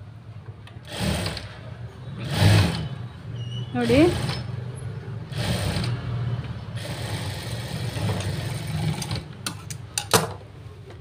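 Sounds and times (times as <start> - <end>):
sewing machine running: 0.9 - 1.6, 2.2 - 3.0, 3.8 - 4.6, 5.3 - 6.0, 6.8 - 9.3.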